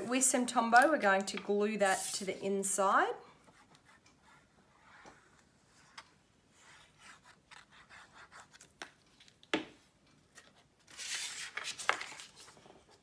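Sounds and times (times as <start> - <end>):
cardstock rustling scrape: 10.9 - 12.6.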